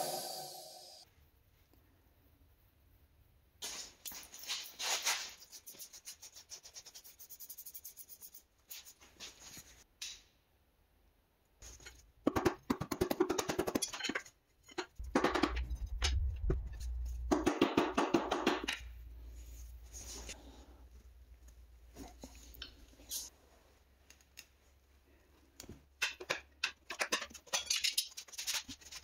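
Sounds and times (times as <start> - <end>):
low rumble and clatter: 15.0 - 17.9.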